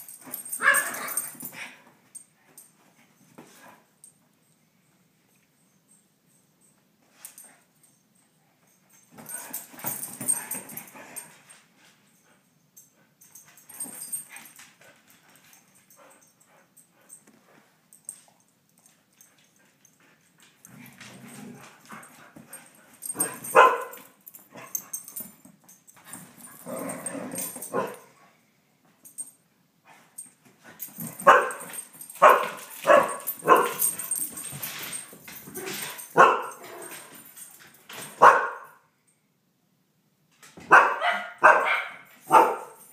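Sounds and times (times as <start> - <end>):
dogs barking and yapping: 0.0 - 1.8, 21.0 - 25.2, 26.4 - 28.2, 30.8 - 38.8, 40.6 - 42.9.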